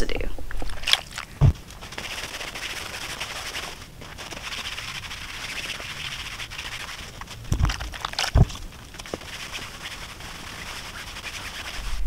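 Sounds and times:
cloth rubbing on tent fabric: 0:00.8 - 0:12.0.

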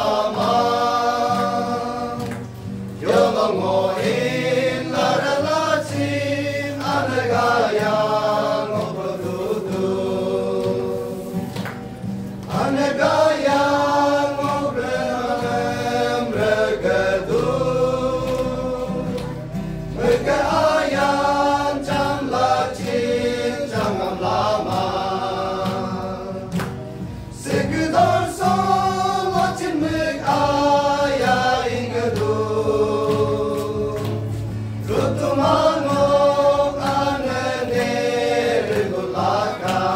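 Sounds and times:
men's choir singing a hymn: 0:00.0 - 0:39.9.

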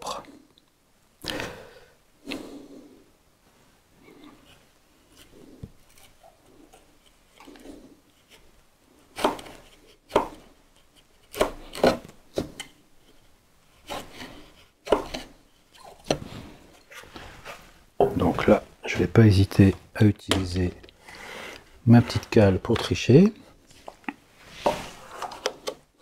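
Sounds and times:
chisel cutting wood: 0:11.2 - 0:12.1
chisel scraping wood: 0:13.7 - 0:15.4.

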